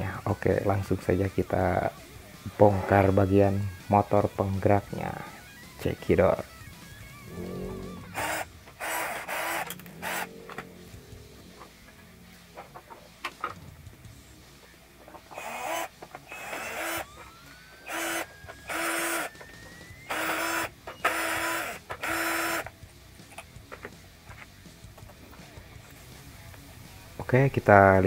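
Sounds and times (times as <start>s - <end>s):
power drill whining in bursts: 4.8s - 10.4s, 15.2s - 22.7s.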